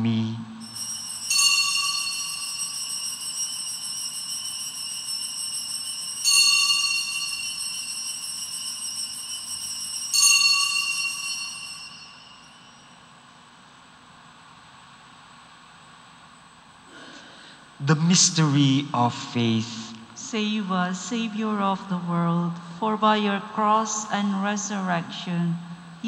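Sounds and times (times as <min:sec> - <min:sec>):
altar bells chiming: 0:00.6 - 0:13.1.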